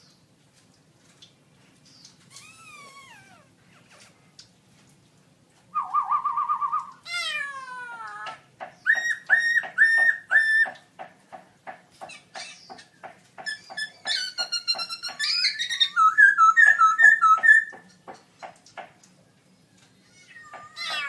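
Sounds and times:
bird whistling song: 0:05.7 - 0:07.0, 0:08.8 - 0:10.9, 0:13.5 - 0:17.8.

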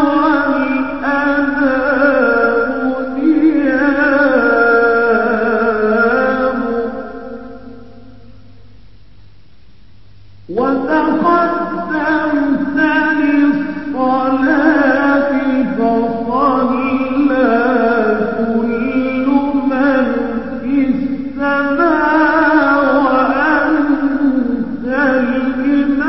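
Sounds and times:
man singing devotional verse: 0:00.0 - 0:08.1, 0:10.5 - 0:26.0.

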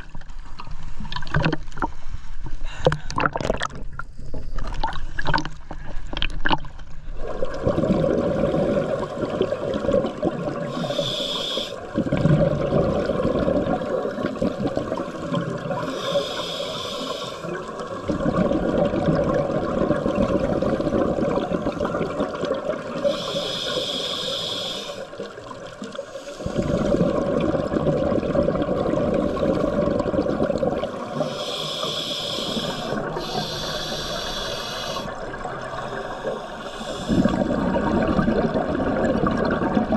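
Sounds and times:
bubbling exhaust underwater: 0:02.7 - 0:39.9
diver inhaling through regulator: 0:10.6 - 0:12.0, 0:15.7 - 0:17.6, 0:23.0 - 0:25.2, 0:30.8 - 0:38.0.

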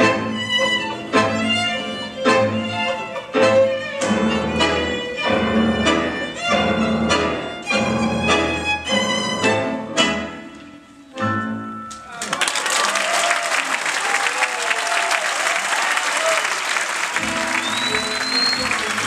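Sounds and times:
violin: 0:00.0 - 0:11.6, 0:17.2 - 0:19.0
tango quartet playing: 0:00.0 - 0:12.2, 0:17.1 - 0:19.0.

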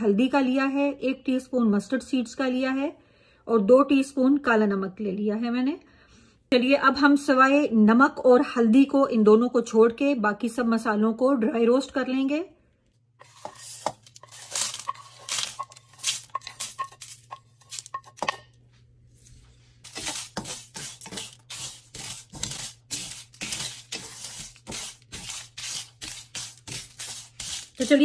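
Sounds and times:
wooden spatula scraping pan: 0:13.2 - 0:18.5, 0:19.1 - 0:28.0
spices rattling into frying pan: 0:14.1 - 0:18.4.

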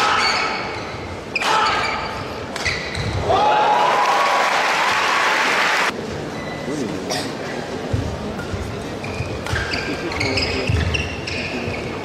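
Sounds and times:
crowd cheering and applauding: 0:03.3 - 0:05.9
rackets hitting shuttlecock: 0:09.3 - 0:09.8.

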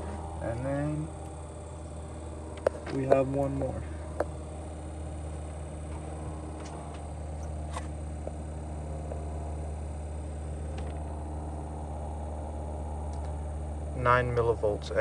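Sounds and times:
van engine idling: 0:00.0 - 0:15.0.

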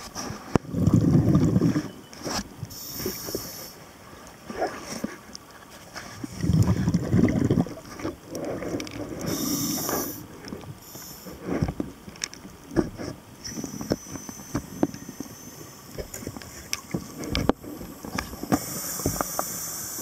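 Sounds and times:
faint high whine: 0:00.0 - 0:05.0, 0:05.8 - 0:20.0
bubbling and hissing: 0:00.4 - 0:05.1, 0:06.2 - 0:20.0
underwater bubbles rushing: 0:00.5 - 0:01.9, 0:06.1 - 0:20.0.

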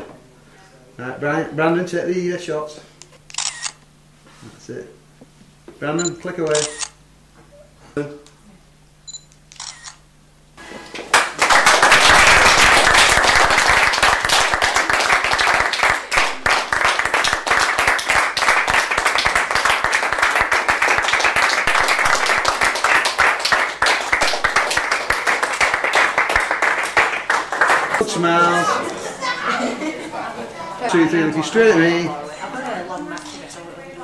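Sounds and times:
people clapping: 0:10.7 - 0:29.0.

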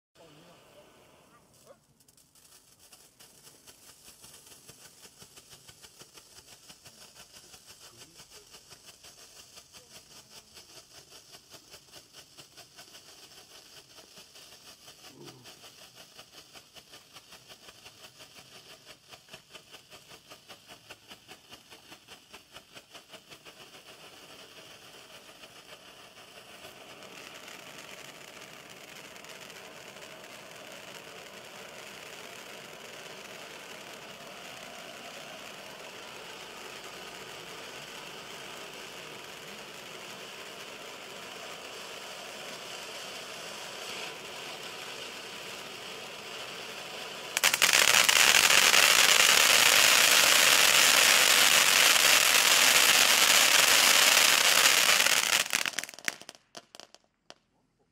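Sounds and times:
firework fountain fizzing and hissing: 0:00.2 - 0:57.5.

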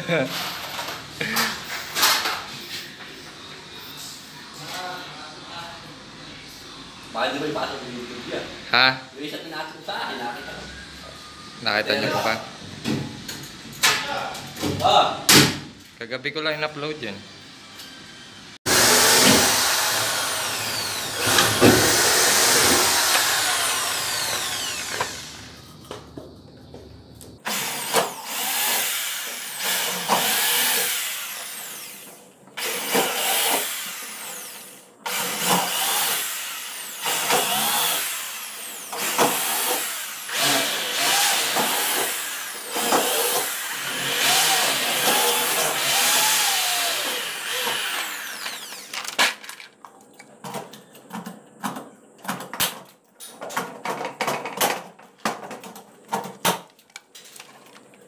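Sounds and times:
handheld power tool bursts: 0:18.7 - 0:25.6, 0:27.4 - 0:49.6.

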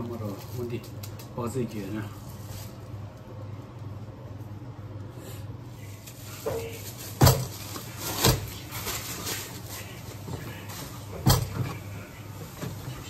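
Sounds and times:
plastic rustling: 0:00.0 - 0:03.0, 0:05.9 - 0:13.0
steady low hum: 0:00.0 - 0:13.0.

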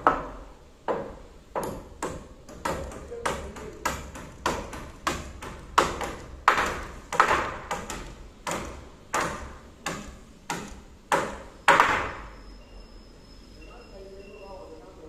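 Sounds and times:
hammers driving nails into wood: 0:00.0 - 0:12.3.

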